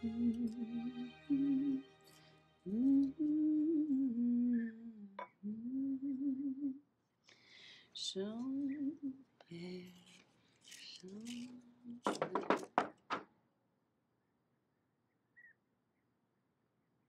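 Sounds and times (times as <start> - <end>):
woman humming: 0.0 - 1.9, 2.6 - 6.8, 8.0 - 10.1.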